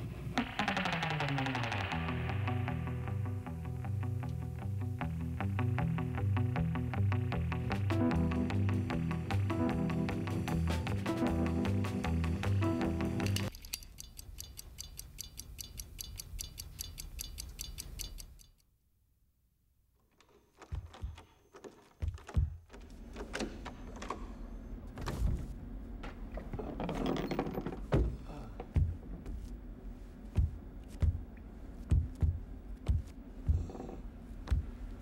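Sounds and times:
rapid even ticking: 13.4 - 18.6
knocks and clattering: 20.2 - 29.5.

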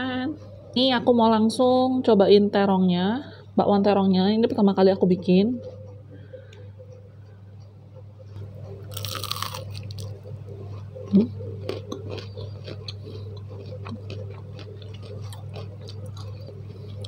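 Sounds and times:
crisp chewing: 8.3 - 17.0
crunchy bite into fried fritter: 8.9 - 10.2
person humming: 11.1 - 11.4.

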